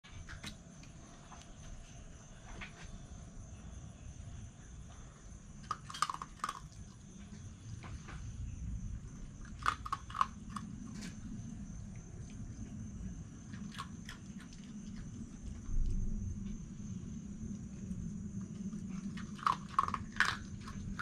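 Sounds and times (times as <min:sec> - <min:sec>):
fox crunching dry food: 0:05.6 - 0:08.2, 0:09.2 - 0:16.5, 0:17.4 - 0:21.0.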